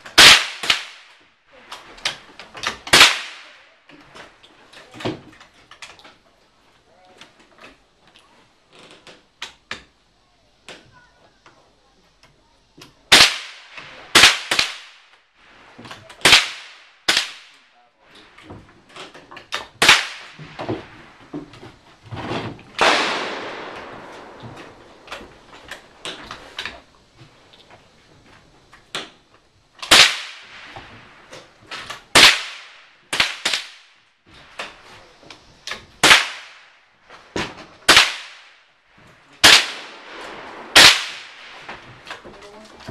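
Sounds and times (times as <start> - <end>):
rifle shots: 0.2 - 1.1, 2.8 - 3.6, 13.1 - 15.1, 16.2 - 17.6, 19.8 - 20.5, 22.8 - 26.0, 29.8 - 31.3, 32.1 - 34.0, 36.0 - 36.8, 37.8 - 38.6, 39.4 - 42.0.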